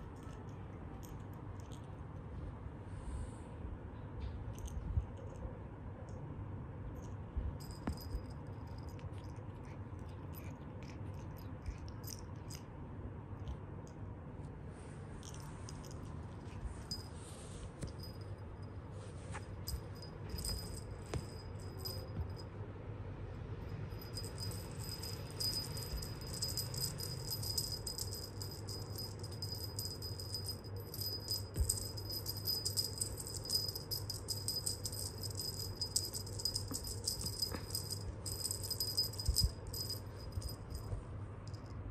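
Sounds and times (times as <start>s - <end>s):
small bell jingling: 7.6s - 12.7s, 15.2s - 22.6s, 23.7s - 41.8s.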